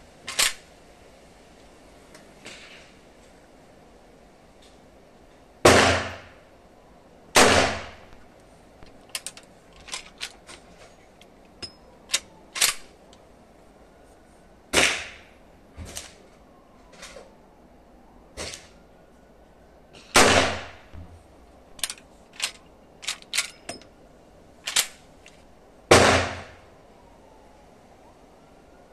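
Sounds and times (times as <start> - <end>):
rifle lever clicks and clacks: 0.3 - 0.6, 8.8 - 12.9, 21.8 - 23.9, 24.6 - 25.4
rifle shots: 5.7 - 6.4, 7.4 - 8.0, 20.2 - 20.8, 25.9 - 26.6.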